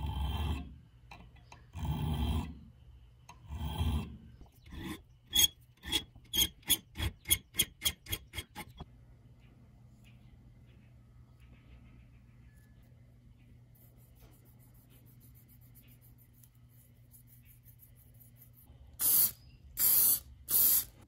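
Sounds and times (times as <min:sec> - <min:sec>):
hand file rasping on steel: 0:03.5 - 0:08.8.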